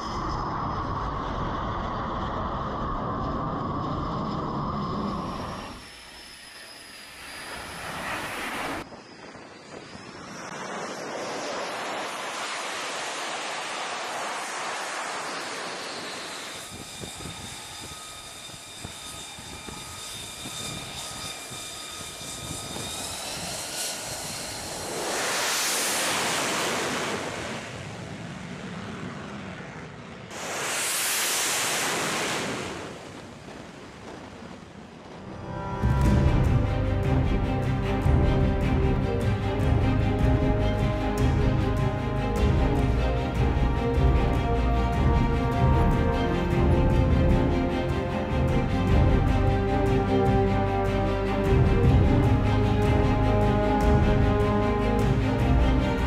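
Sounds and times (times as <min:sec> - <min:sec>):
jet turbine whine: 0:00.0 - 0:56.0
jets passing: 0:20.7 - 0:33.3.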